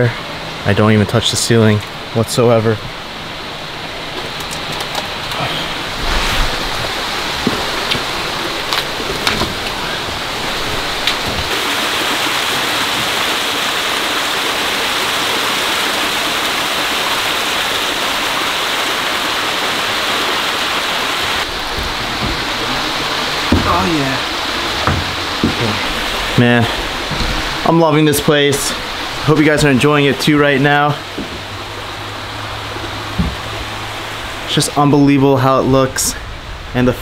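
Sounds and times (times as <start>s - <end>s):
water rushing down waterfall: 0.0s - 37.0s
light knocks: 23.4s - 23.9s, 24.8s - 25.6s.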